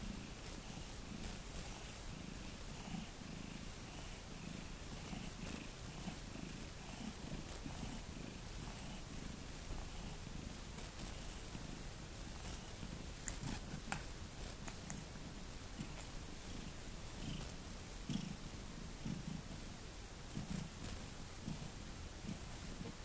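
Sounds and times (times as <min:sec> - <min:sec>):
cat purring: 0:00.0 - 0:23.0.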